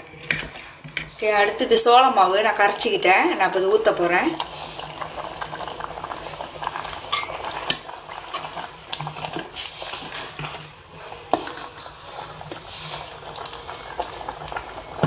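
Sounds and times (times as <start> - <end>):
porridge bubbling: 0.0 - 15.0
ladle scraping metal pot: 7.1 - 13.6.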